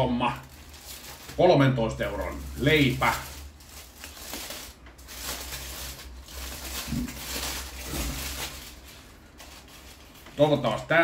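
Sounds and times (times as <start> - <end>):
aluminium foil crinkling: 0.0 - 11.0.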